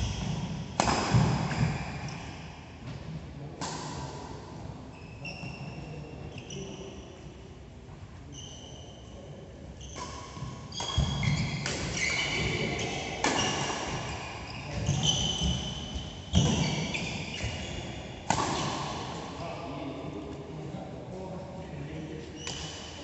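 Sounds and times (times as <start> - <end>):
racket striking shuttlecock: 0.8 - 1.6, 18.3 - 18.9
shoes squeaking on court: 9.8 - 18.7, 22.4 - 22.8.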